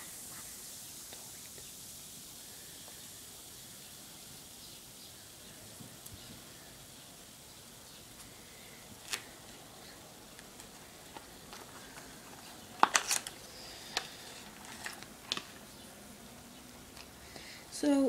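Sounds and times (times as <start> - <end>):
faint fizzing foam: 0.0 - 18.0.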